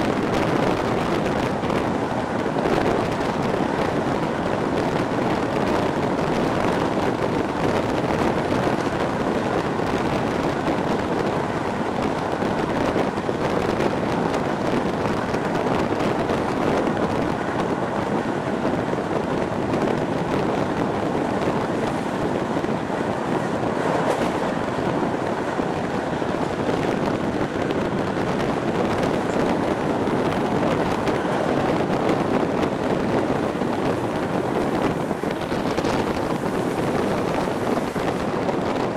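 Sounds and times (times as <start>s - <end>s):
wind and train rolling noise: 0.0s - 38.9s
wind buffeting microphone: 0.0s - 38.9s.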